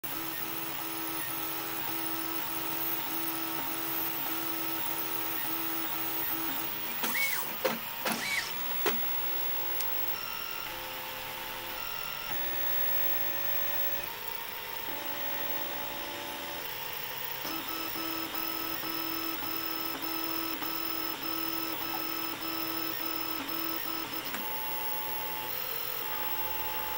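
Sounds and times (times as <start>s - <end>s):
stepper motors whining: 0.2s - 10.9s.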